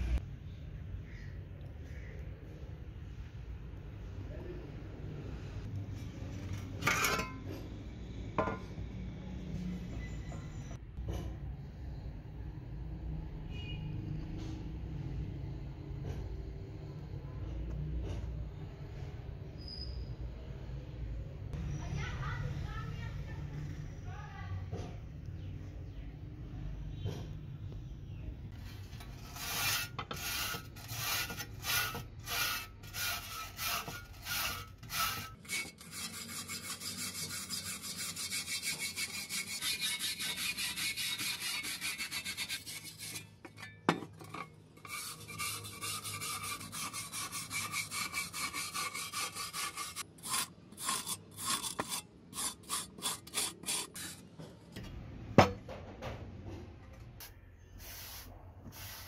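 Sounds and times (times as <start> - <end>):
wire brush scrubbing metal: 29.0 - 54.3.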